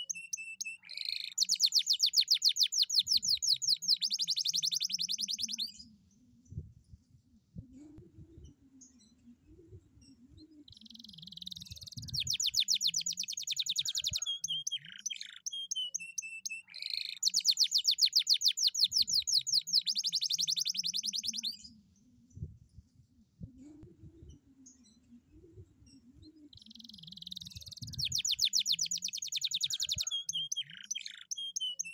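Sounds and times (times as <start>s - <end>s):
canary singing trills: 0.0s - 5.9s, 10.0s - 21.8s, 25.8s - 31.9s.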